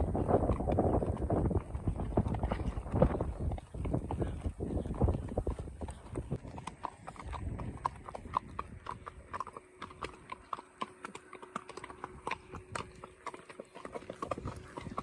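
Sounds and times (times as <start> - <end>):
wind rumble on microphone: 0.0 - 9.5, 14.1 - 15.0
hooves on dirt track: 0.0 - 15.0.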